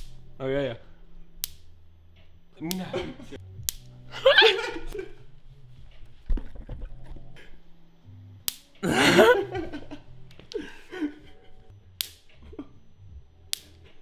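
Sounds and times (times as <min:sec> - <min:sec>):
electric fly-swatter spark snaps: 0:01.4 - 0:01.7, 0:03.6 - 0:03.9, 0:08.4 - 0:08.8, 0:12.0 - 0:12.4, 0:13.5 - 0:13.9.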